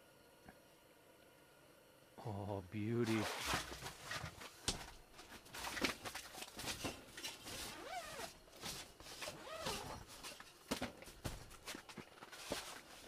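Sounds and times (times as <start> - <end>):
clothing rustling: 3.1 - 13.0
knocks and scuffs: 3.9 - 13.0.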